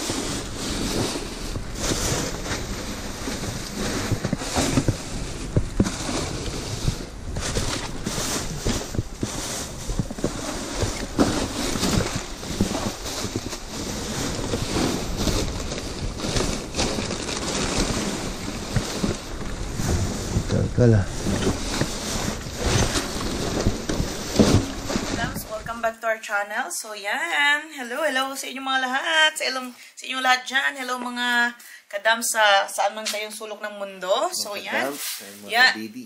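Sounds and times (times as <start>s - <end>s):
plastic bags rustling: 0.0s - 25.9s, 34.1s - 35.7s.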